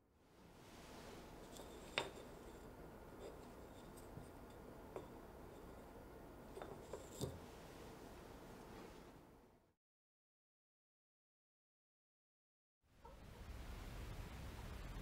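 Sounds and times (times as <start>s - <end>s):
faint room noise: 0.0s - 9.8s, 12.8s - 15.0s.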